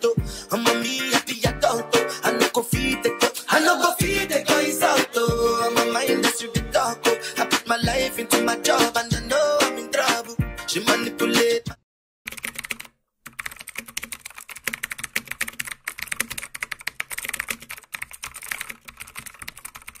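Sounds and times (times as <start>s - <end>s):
keyboard typing: 12.3s - 20.0s.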